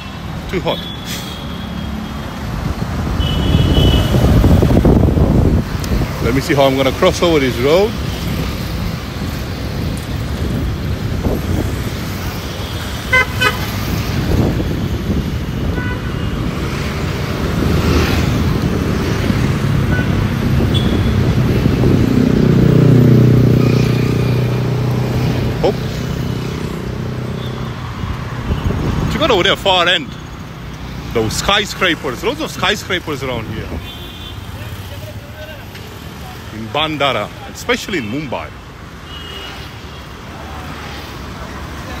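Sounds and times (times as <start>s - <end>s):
road traffic passing: 0.0s - 42.0s
car horn toot: 3.2s - 4.3s, 12.6s - 13.8s, 15.7s - 16.4s, 19.9s - 21.2s.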